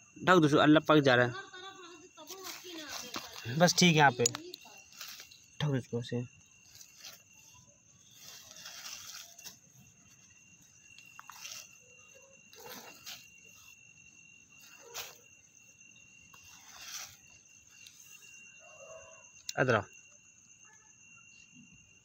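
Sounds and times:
cloth rustling: 2.2s - 4.1s, 6.6s - 13.8s, 16.3s - 18.3s.

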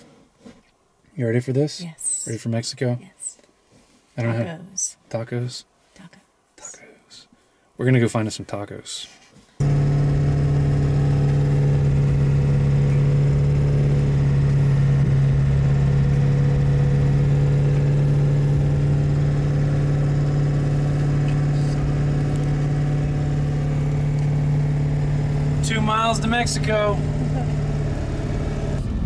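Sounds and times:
truck engine and road noise: 9.6s - 29.0s.

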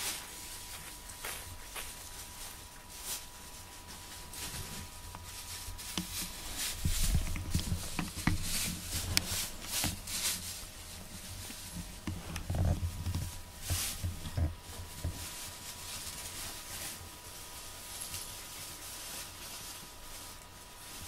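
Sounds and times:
dull bumps on camera: 6.0s - 10.1s.

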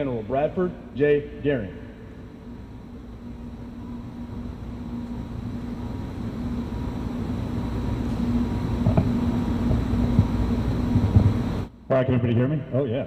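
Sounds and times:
aircraft engine rumble: 1.6s - 11.8s.

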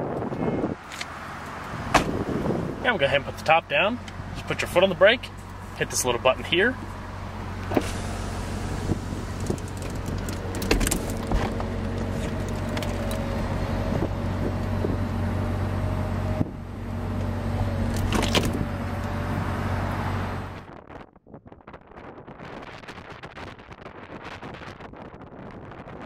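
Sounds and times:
car engine idling: 0.1s - 20.7s
roof panels clunking and clicking: 9.3s - 13.4s, 17.9s - 18.7s.

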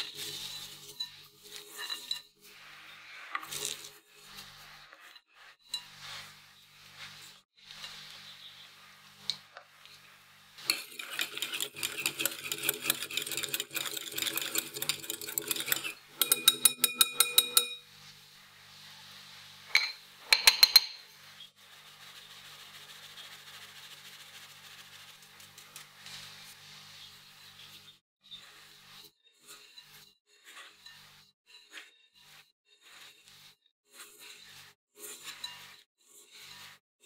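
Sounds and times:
whisk clinking against glass bowl: 0.0s - 2.3s, 10.6s - 17.9s, 19.7s - 21.1s.

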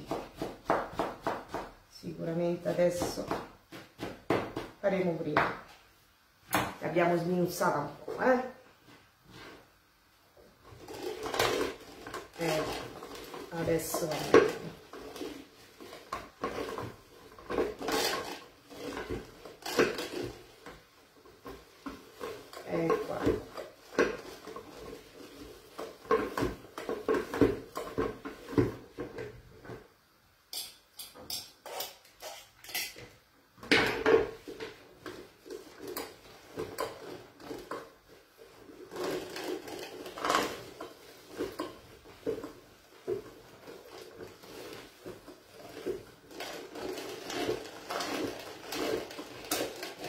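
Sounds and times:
metal food mill clanking and scraping: 10.6s - 29.8s, 30.5s - 50.0s.

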